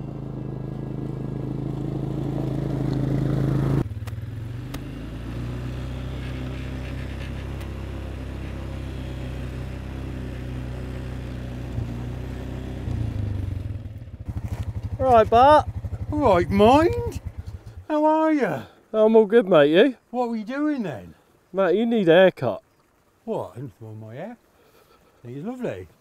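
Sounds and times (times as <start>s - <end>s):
quad bike engine running: 0.0s - 17.9s.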